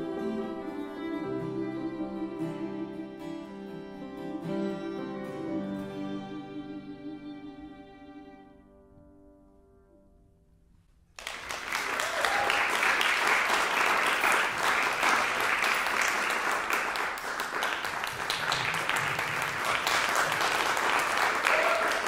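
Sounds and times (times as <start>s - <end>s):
audience applause: 11.2s - 22.0s.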